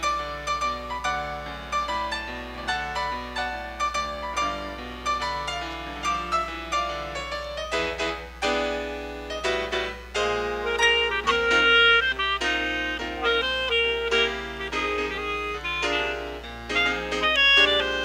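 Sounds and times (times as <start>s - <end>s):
slow piano piece: 0.0s - 18.0s
clarinet long held notes: 10.4s - 18.0s.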